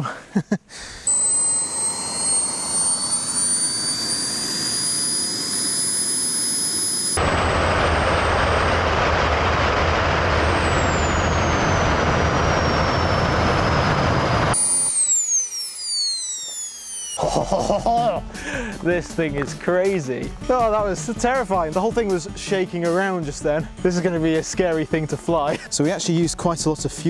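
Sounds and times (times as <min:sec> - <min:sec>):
jet engine whine and roar: 0:01.0 - 0:17.2.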